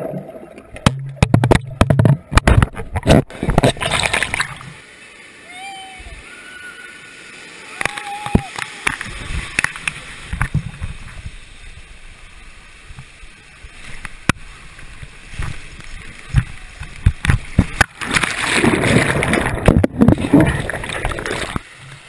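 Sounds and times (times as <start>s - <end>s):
water rushing along a slide: 0.0s - 22.0s.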